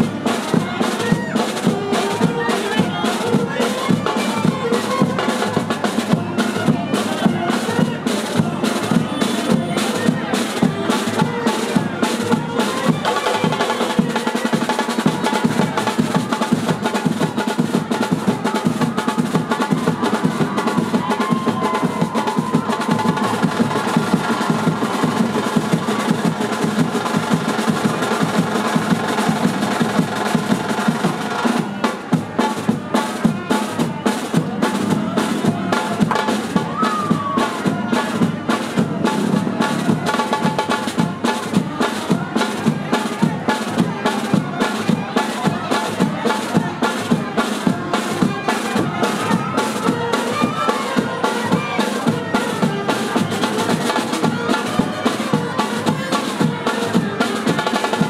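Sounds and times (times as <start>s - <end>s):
fast drumming: 0.0s - 58.0s
sustained band instruments: 0.0s - 58.0s.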